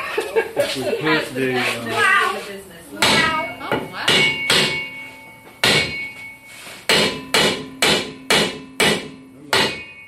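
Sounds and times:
hammer striking metal drum: 0:03.0 - 0:10.0.

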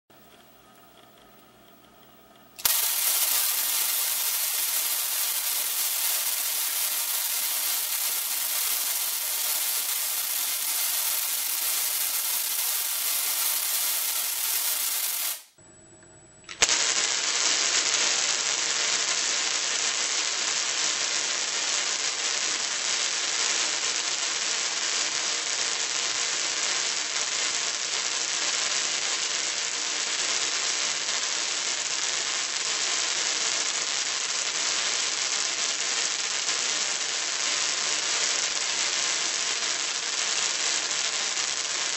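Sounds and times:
electrical discharge hissing: 0:02.6 - 0:15.6.

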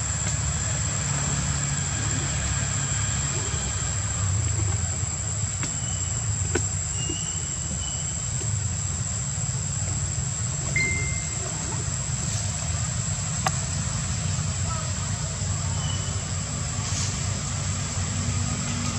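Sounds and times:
steady low rumble: 0:00.0 - 0:15.6
thin high whine: 0:10.6 - 0:12.5.

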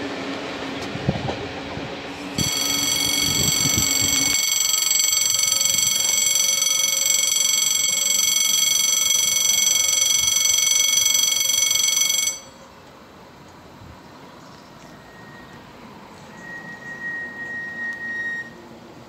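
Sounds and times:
level-crossing bell ringing: 0:02.3 - 0:12.7.

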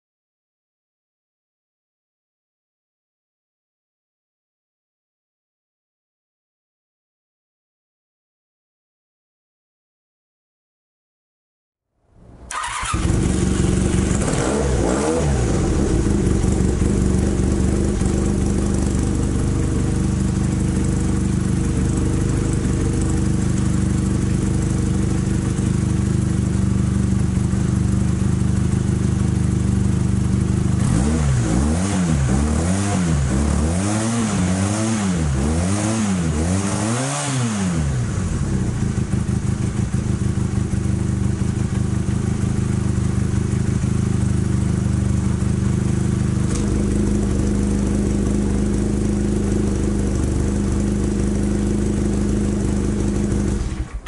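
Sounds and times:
motorcycle throttle blips: 0:12.3 - 0:29.0
motorcycle engine idling: 0:12.5 - 0:30.9, 0:38.1 - 0:54.0.

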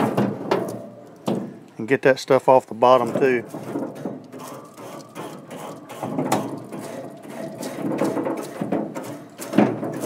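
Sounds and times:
grill brush scraping metal grate: 0:02.8 - 0:10.0.

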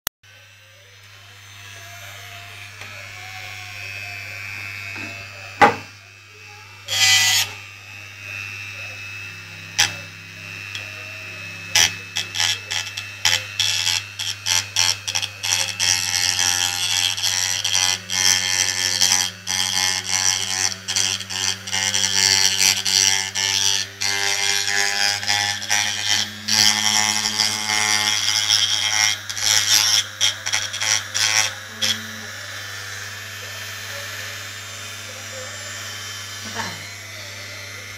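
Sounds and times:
rotary tool whining: 0:00.3 - 0:37.9.

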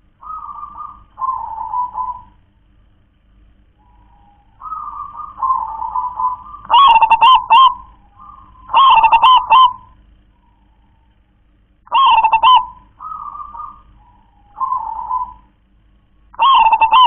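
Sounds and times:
dove cooing: 0:00.0 - 0:02.5, 0:03.8 - 0:11.0, 0:11.9 - 0:15.6, 0:16.4 - 0:17.0.

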